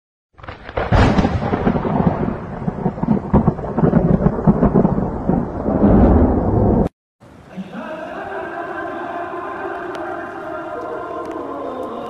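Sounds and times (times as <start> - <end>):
thunder cracking and rumbling: 0.3 - 6.9
falling rain: 0.4 - 12.0.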